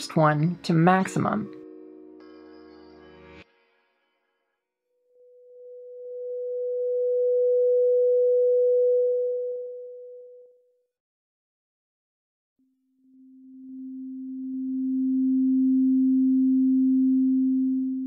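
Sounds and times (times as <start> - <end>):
pure sine synth tone: 1.2 - 3.4, 5.1 - 10.7, 12.6 - 18.0.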